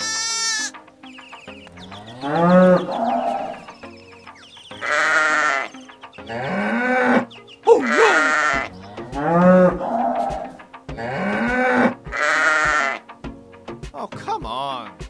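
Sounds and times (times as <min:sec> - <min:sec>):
cattle mooing: 0:00.0 - 0:00.8, 0:01.9 - 0:03.7, 0:04.8 - 0:13.1.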